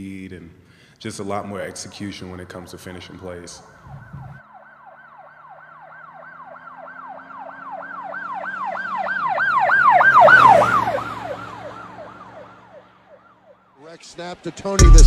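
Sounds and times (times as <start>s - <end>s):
emergency siren yelping: 3.6s - 14.8s.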